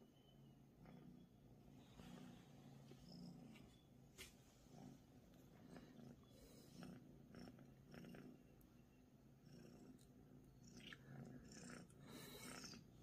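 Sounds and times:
cat purring: 0.1 - 13.0
faint rustles of bed fabric: 1.7 - 6.8.

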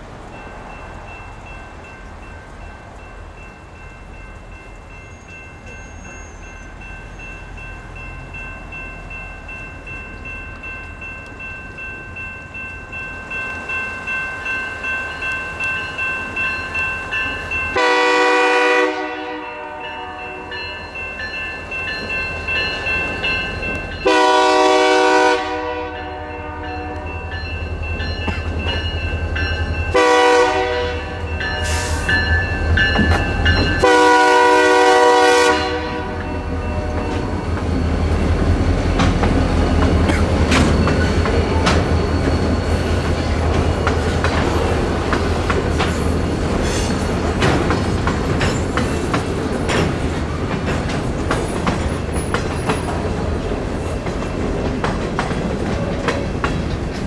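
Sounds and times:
crossing signal bells ringing: 0.0 - 54.8
locomotive horn blasts: 17.7 - 20.7, 24.0 - 27.2, 29.9 - 32.0, 33.8 - 37.3.

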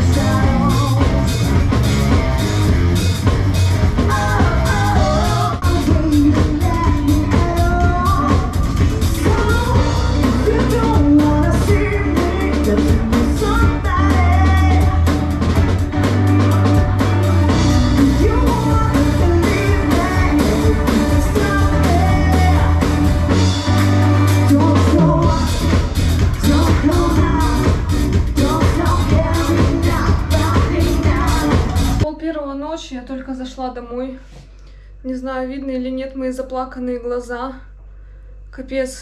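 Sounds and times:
woman singing lead: 0.0 - 2.2, 3.9 - 32.1
electric guitar: 0.0 - 32.0
drum kit: 0.0 - 32.1
electric bass: 0.0 - 32.1.

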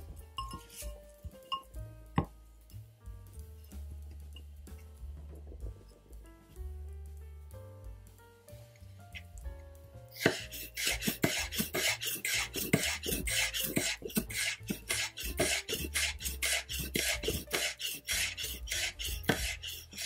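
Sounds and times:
knife chopping on wooden board: 10.2 - 20.0.

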